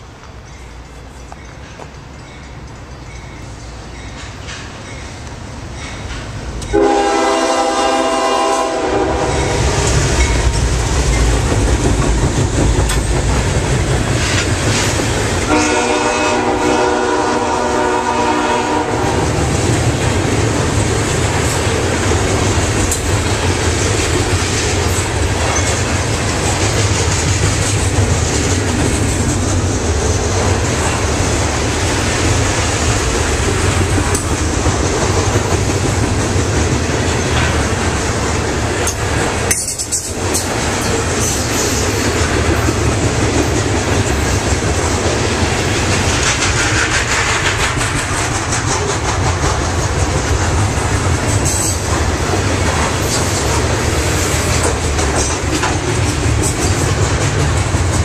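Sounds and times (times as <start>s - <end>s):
train cars clattering on rails: 0.0s - 58.0s
locomotive air horn: 6.7s - 9.6s, 15.4s - 19.3s.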